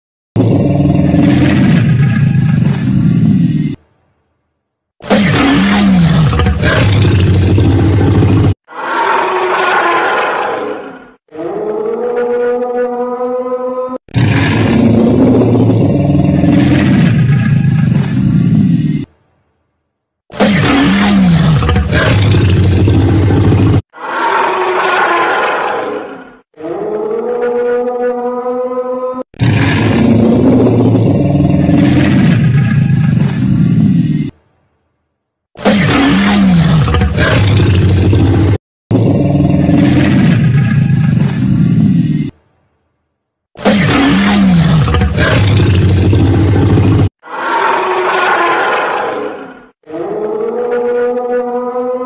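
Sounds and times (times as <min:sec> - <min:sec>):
deep dinosaur roar: 0:00.4 - 0:03.8, 0:05.0 - 0:12.7, 0:14.1 - 0:19.1, 0:20.4 - 0:28.0, 0:29.4 - 0:34.4, 0:35.6 - 0:42.4, 0:43.6 - 0:52.0
higher-pitched roar: 0:05.0 - 0:13.2, 0:20.4 - 0:27.9, 0:43.6 - 0:52.0.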